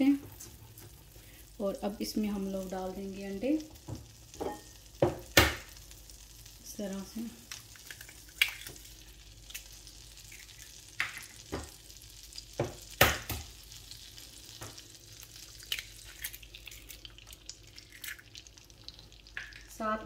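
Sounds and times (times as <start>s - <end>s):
butter sizzling in a pan: 0.0s - 20.0s
eggshell cracks and taps: 7.5s - 8.9s, 19.3s - 19.7s.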